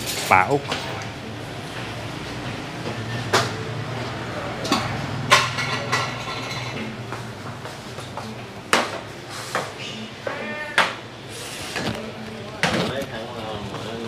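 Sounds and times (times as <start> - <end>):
bowls and spoons clinking: 4.6 - 7.0.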